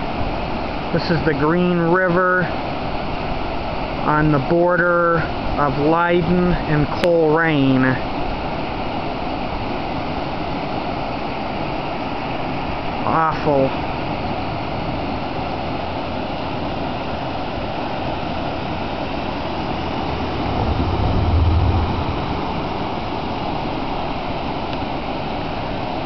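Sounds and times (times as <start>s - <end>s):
water rushing over rapids: 5.2s - 26.0s
low rumble: 18.3s - 24.4s.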